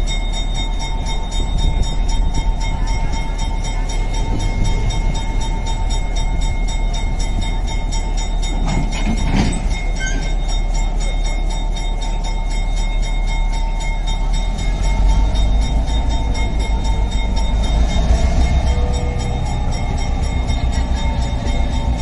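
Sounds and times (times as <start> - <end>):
diesel locomotive rumbling: 0.0 - 22.0.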